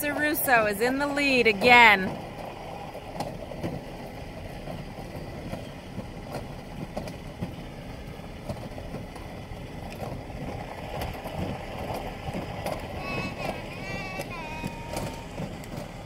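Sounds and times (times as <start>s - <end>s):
vehicle engine rumble from inside: 0.0s - 16.0s
faint clicks: 11.0s - 15.9s.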